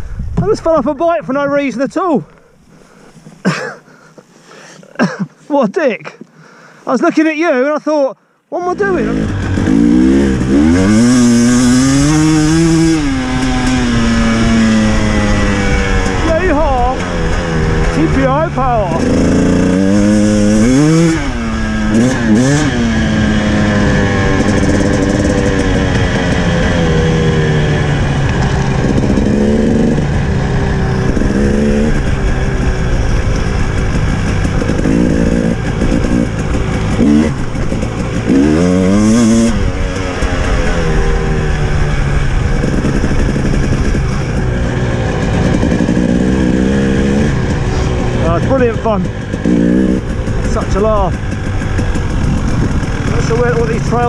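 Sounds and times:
dirt bike engine revving: 8.6s - 54.0s.

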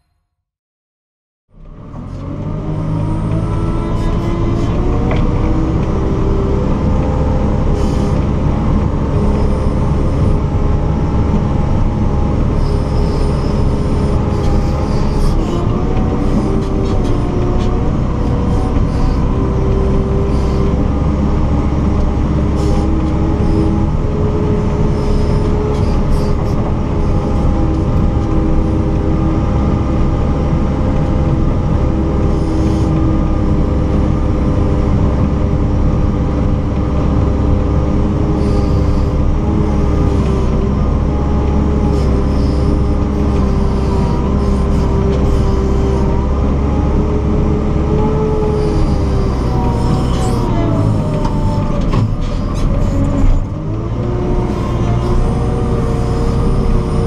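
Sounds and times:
diesel engine rumble with whine: 1.5s - 57.0s.

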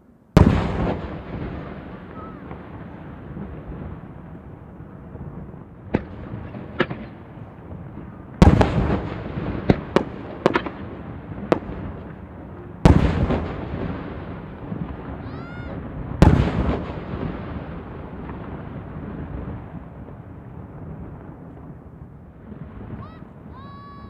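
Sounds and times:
deep firework booms: 0.3s - 24.0s
firework crackles: 0.3s - 24.0s
light firework pops: 5.9s - 7.2s, 8.4s - 10.8s.

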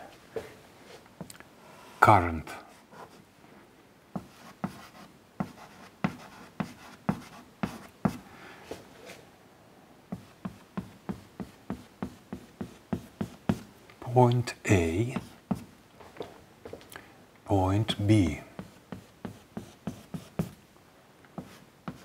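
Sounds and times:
chalk tapping on blackboard: 4.2s - 8.2s, 10.1s - 13.7s, 18.6s - 20.6s, 21.4s - 22.0s.

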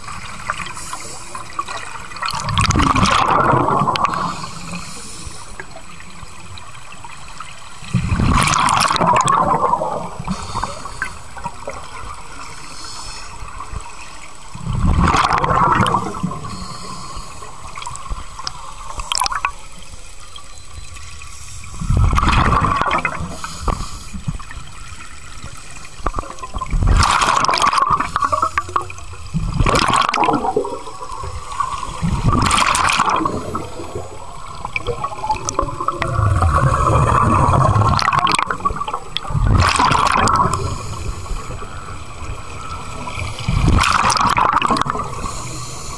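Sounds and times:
underwater hiss: 0.0s - 2.1s, 3.7s - 6.1s, 9.6s - 14.9s, 15.6s - 19.4s, 21.1s - 26.0s, 26.8s - 29.7s, 30.4s - 44.2s, 44.9s - 45.9s
gurgling exhaled bubbles: 1.6s - 4.8s, 7.9s - 12.3s, 14.5s - 17.0s, 21.7s - 23.7s, 24.3s - 45.9s.

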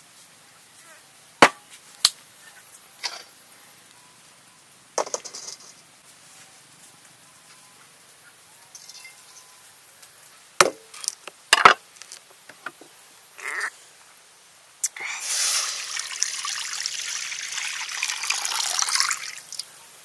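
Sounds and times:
water pouring into metal wok: 15.2s - 19.6s.

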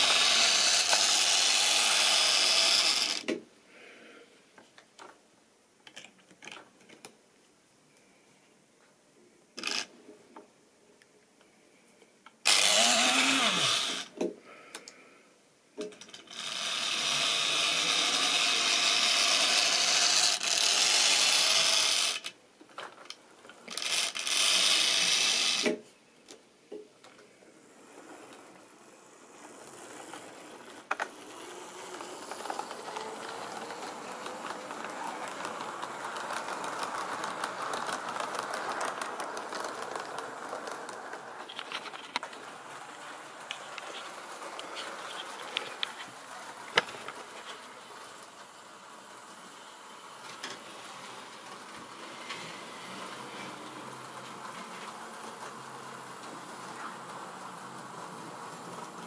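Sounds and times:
model train motors whirring: 0.0s - 3.4s, 12.4s - 14.2s, 16.0s - 25.8s, 27.5s - 59.0s
wheels running on track: 27.8s - 59.0s.

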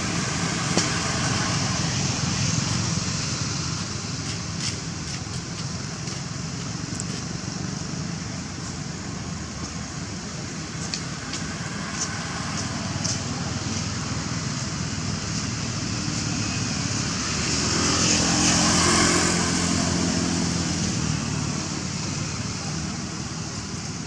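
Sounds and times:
passing vehicle engine: 10.7s - 24.0s.

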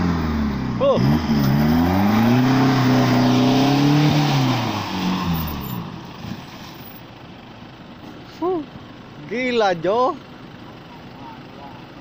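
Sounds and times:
pickup truck engine revving hard: 0.0s - 5.6s.

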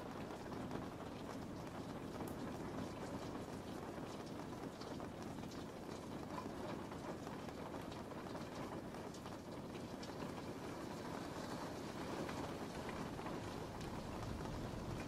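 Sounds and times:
raindrops ticking: 0.0s - 15.0s
steady rain: 0.0s - 15.0s.

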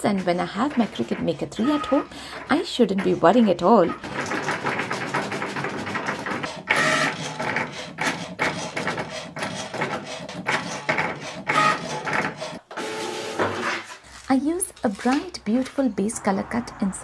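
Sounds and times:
cutting machine motor whirring: 0.0s - 13.7s.

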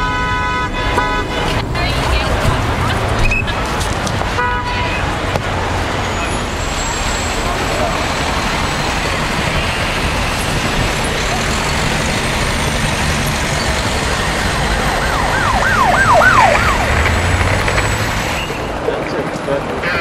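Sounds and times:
city street traffic: 0.0s - 20.0s
heavy engine rumble: 0.1s - 20.0s
siren yelping: 13.4s - 18.8s.

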